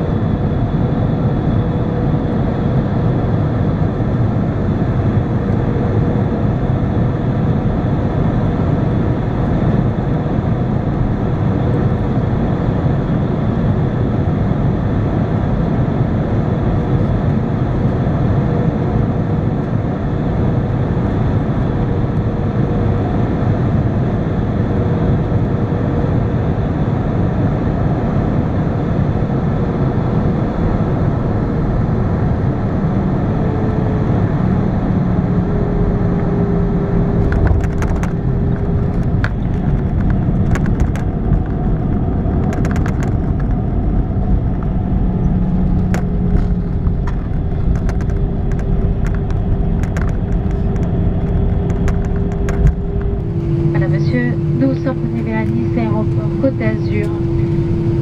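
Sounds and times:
airliner engine rumble: 0.0s - 58.0s
clicks and rattles: 37.2s - 41.5s, 45.8s - 53.2s
rushing air: 43.7s - 58.0s.

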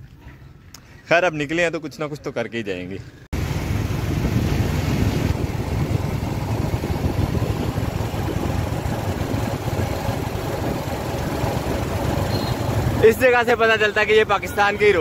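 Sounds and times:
vehicle road noise rumble: 3.1s - 15.0s.

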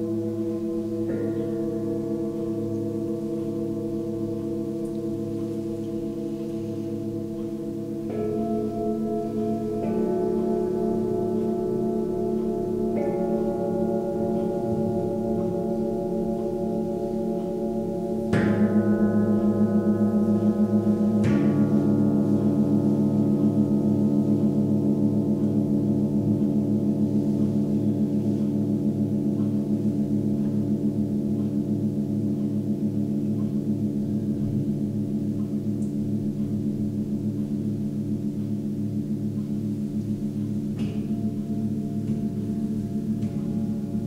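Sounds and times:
singing bowls struck: 0.0s - 32.0s, 39.8s - 44.0s
singing bowls ringing: 0.0s - 35.2s, 39.0s - 44.0s.

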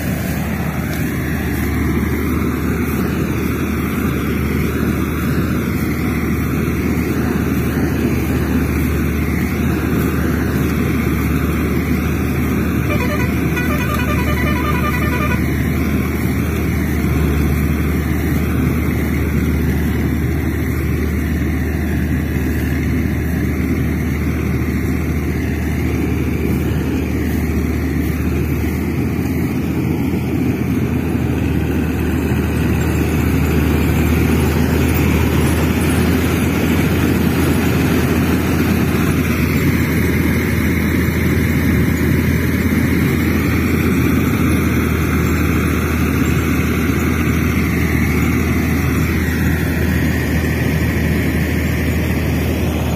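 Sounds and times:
heavy vehicle engine rumbling: 0.0s - 52.9s
rapid pulsing tone: 1.6s - 21.6s.

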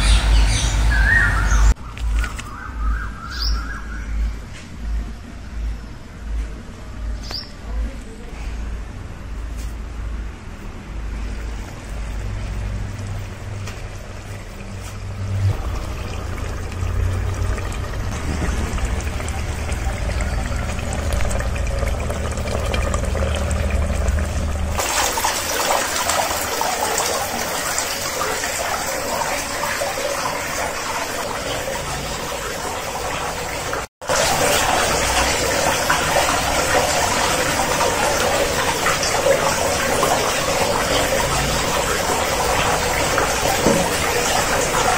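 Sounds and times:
low steady rumble: 4.0s - 24.8s
fountain water splashing and trickling: 11.2s - 44.9s.

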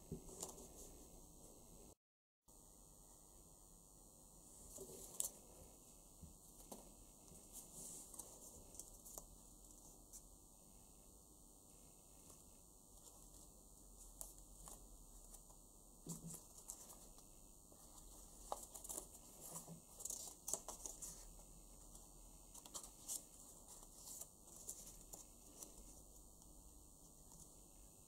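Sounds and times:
paper rustling and crinkling: 16.1s - 26.2s.

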